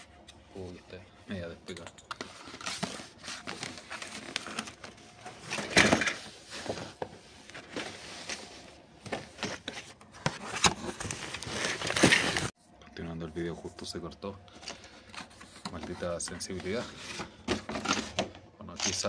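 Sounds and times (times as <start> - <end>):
cardboard box rustling and scraping: 5.4 - 12.5.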